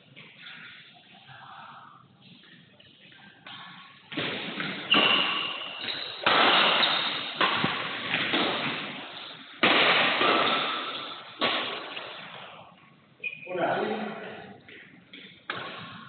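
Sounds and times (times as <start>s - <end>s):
racket striking shuttlecock: 3.5s - 12.5s.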